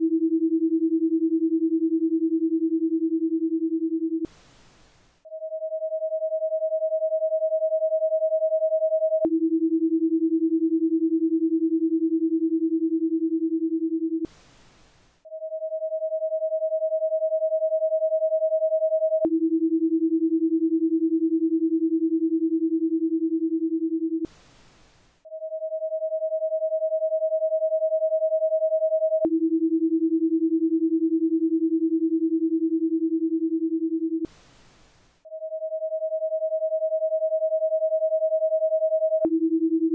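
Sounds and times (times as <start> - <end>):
lower steady tone: 0.0 - 39.9.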